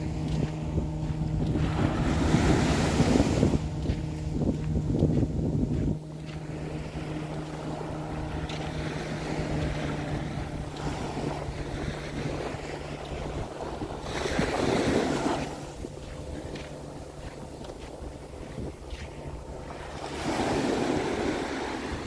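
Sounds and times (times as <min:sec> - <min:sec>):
waves washing on sandy beach: 0:00.0 - 0:22.0
wind on microphone: 0:00.0 - 0:22.0.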